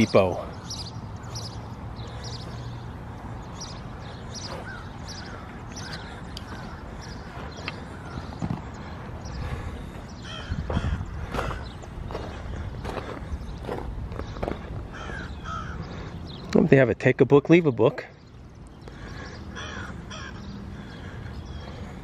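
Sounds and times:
footsteps on gravel: 9.8 - 15.2.

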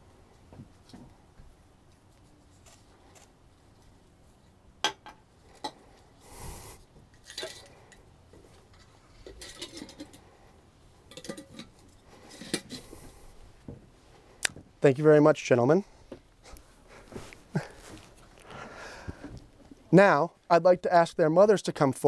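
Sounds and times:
containers clinking and knocking: 8.8 - 10.3, 11.1 - 12.8.

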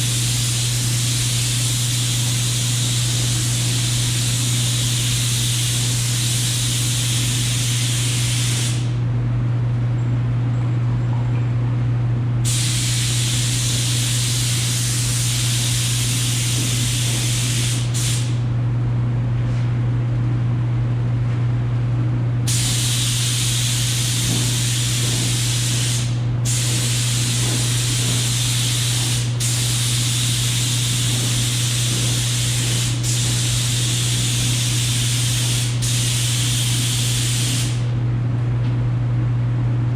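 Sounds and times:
paint spray gun hissing: 0.0 - 8.9, 12.5 - 18.4, 22.5 - 37.8.

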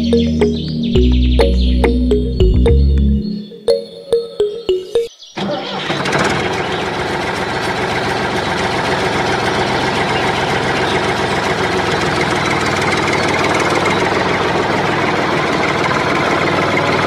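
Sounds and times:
motor running with fast rattle: 6.0 - 17.0.

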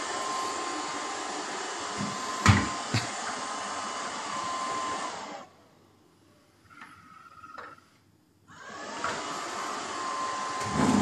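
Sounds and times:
robot vacuum cleaner whirring: 0.0 - 5.5, 8.5 - 11.0.

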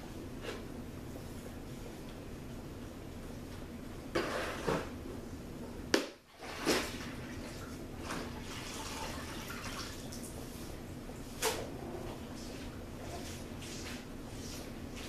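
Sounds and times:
water sloshing and dripping: 6.3 - 10.4.

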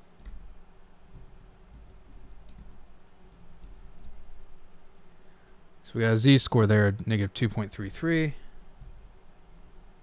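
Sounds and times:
typing on computer keyboard: 0.1 - 0.5, 1.1 - 4.3.

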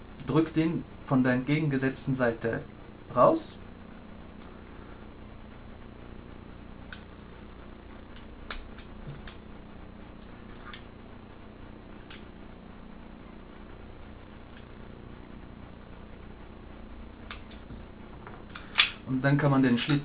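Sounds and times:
pistol parts clicking: 18.5 - 19.0.

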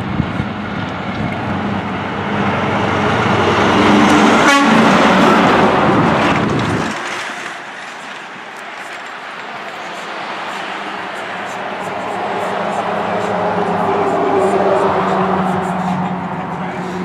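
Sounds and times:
truck passing by: 0.0 - 17.0
truck horn: 2.7 - 6.3, 10.5 - 17.0.

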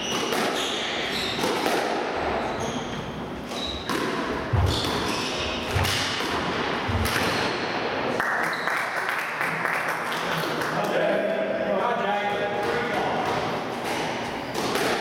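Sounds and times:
court shoes squeaking: 0.0 - 7.7
squash ball cracking off rackets: 0.1 - 2.2, 3.8 - 7.6, 12.6 - 15.0.

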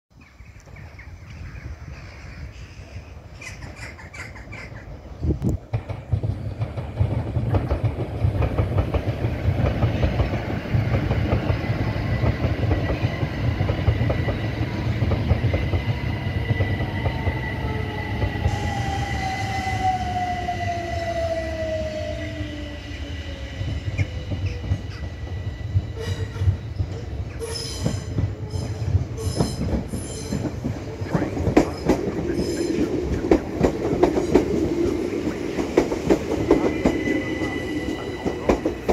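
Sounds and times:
rumble of train wheels on track: 0.3 - 38.9
falling whine of passing train: 0.6 - 38.9.

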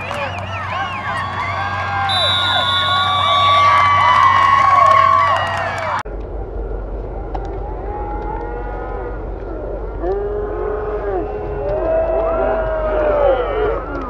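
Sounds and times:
drawn-out shouts and calls: 0.0 - 6.0
spectators cheering: 0.0 - 6.0, 10.5 - 14.0.

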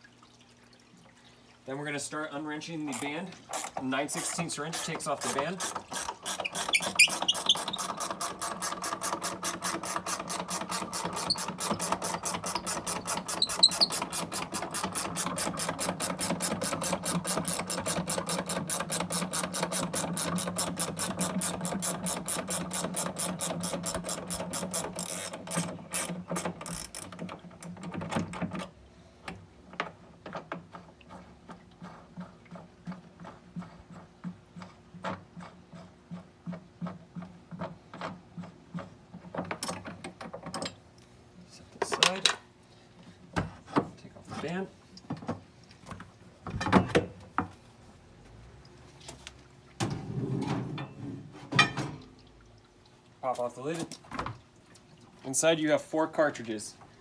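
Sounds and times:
ratcheting wrench clicking: 2.9 - 27.1.

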